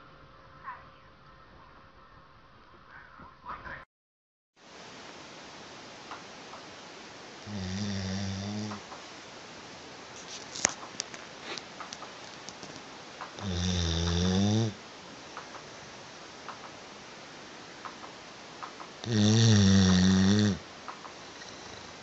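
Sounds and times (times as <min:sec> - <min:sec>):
dog snoring: 0:07.4 - 0:08.8, 0:13.3 - 0:14.8, 0:19.0 - 0:20.6, 0:21.3 - 0:22.0.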